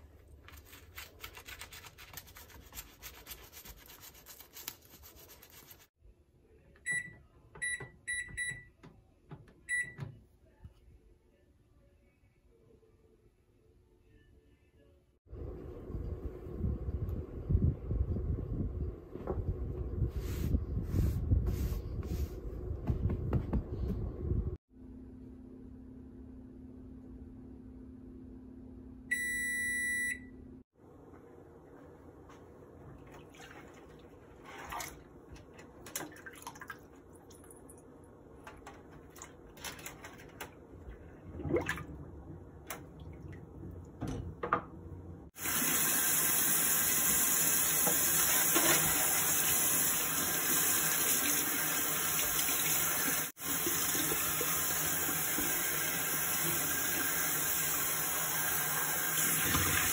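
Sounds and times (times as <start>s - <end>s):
microwave long beep: 6.8s - 8.8s, 9.6s - 10.2s, 28.3s - 30.6s
microwave oven humming: 24.2s - 30.6s
hands sloshing bag in soapy water: 33.0s - 37.0s.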